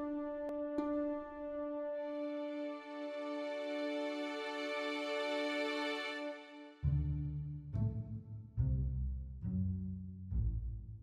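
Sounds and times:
held chord: 0.0 - 6.7
deep low notes: 6.8 - 11.0.

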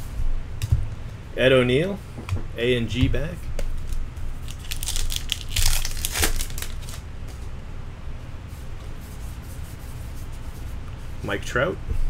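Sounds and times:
cards rustling in hands: 3.7 - 7.4
wrapper crinkling and tearing: 3.8 - 7.1.

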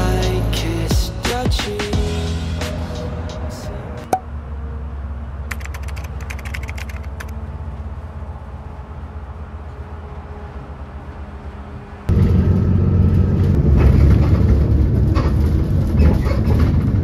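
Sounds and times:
bus engine humming: 0.0 - 17.0
rapid clicking: 5.5 - 7.3.

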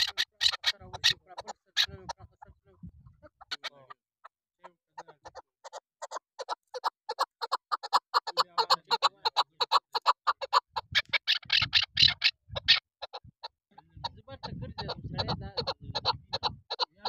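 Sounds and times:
partridge calling chuck notes: 0.0 - 17.0.

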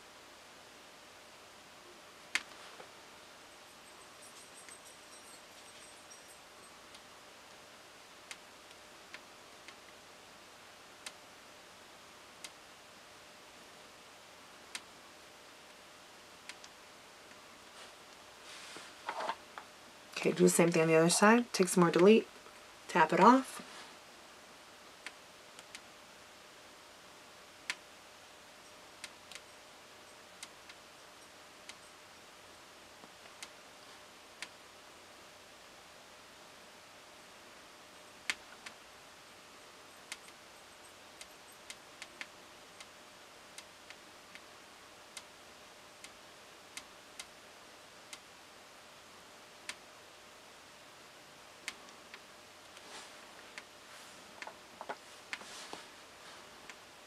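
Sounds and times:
faint room hiss: 0.0 - 57.0
faint small clicks: 16.5 - 17.4, 25.0 - 25.9, 29.0 - 29.5, 40.0 - 40.4.

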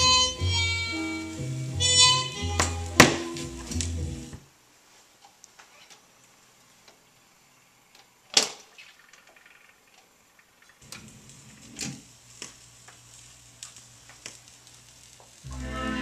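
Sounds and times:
record changer sharp click: 10.8 - 13.0.

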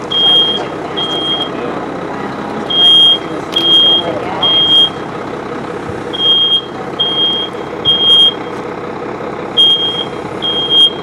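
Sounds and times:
steady noisy background: 0.0 - 7.6
smoke alarm beeping: 0.1 - 1.6, 2.7 - 5.0, 6.2 - 8.4, 9.6 - 11.0.

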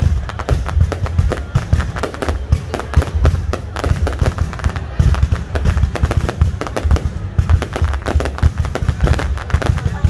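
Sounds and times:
fireworks bangs and booms: 0.0 - 10.0.

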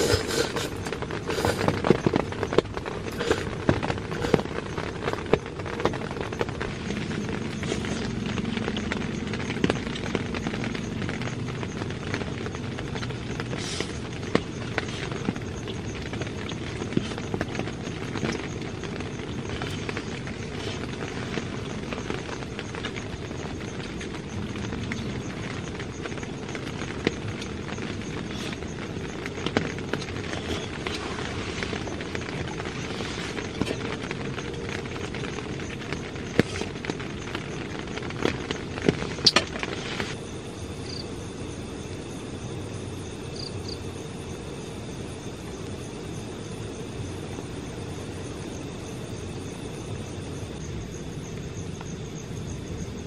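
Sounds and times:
raindrops tapping on fabric: 0.0 - 40.2
rain hissing on tent: 0.0 - 53.0.

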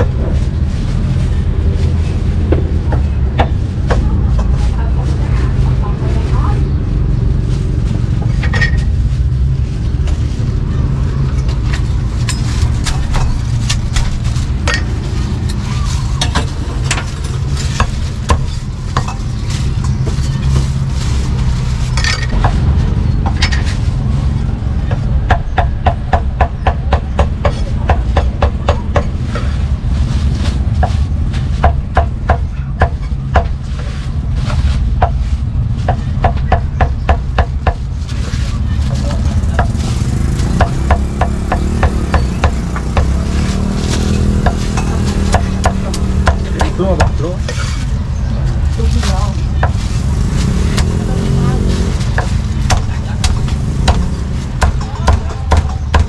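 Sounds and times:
low rumble: 0.0 - 36.4
cleaver chopping on wooden block: 52.2 - 56.0.

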